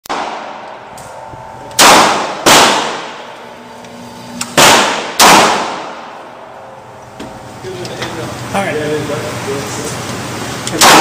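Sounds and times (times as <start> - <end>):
pistol shots echoing: 0.1 - 0.8, 1.8 - 3.3, 4.5 - 6.2, 10.8 - 11.0.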